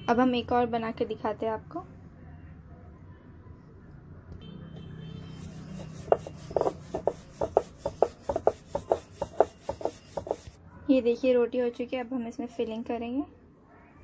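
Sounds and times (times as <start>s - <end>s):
rolling pin on wooden board: 5.4s - 10.6s.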